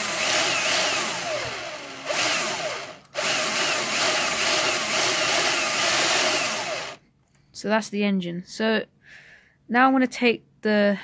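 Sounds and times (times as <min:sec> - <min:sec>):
drill whirring: 0:00.0 - 0:07.0.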